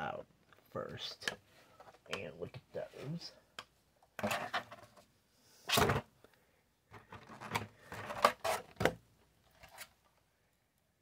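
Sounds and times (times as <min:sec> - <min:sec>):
plastic tray scraping: 0:04.2 - 0:05.0, 0:07.0 - 0:08.9
plastic rustles and clicks: 0:06.9 - 0:10.1.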